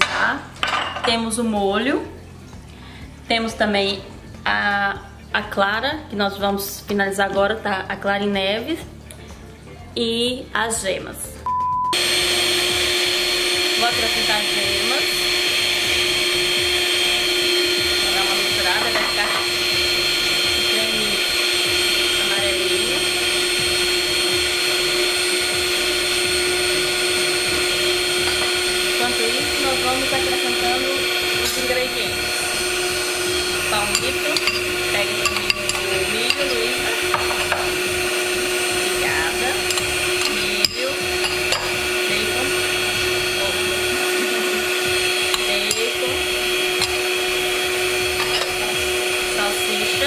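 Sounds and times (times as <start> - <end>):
stand mixer motor whining: 12.0 - 50.0
metal spoon clicking on bowl: 33.9 - 36.4, 39.6 - 41.7.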